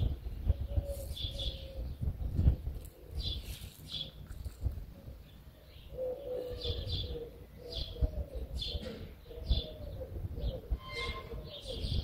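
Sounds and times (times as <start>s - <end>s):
dove cooing: 0.0s - 4.1s, 5.0s - 12.0s
small bird chirping: 0.0s - 4.6s.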